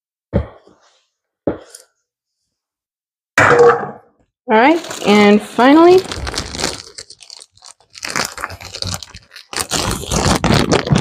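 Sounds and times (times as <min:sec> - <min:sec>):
plastic bag crinkling: 0:04.6 - 0:11.0.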